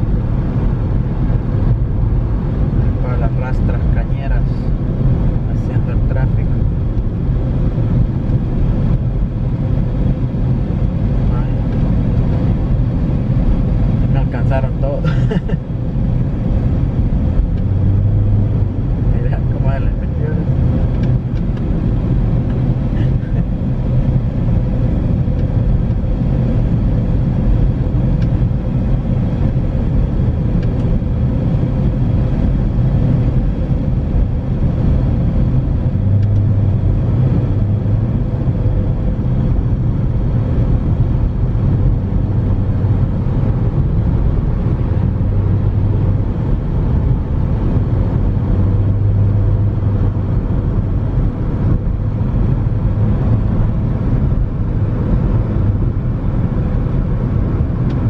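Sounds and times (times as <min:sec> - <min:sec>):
car engine rumble: 0:00.0 - 0:58.0
road noise: 0:00.0 - 0:58.0.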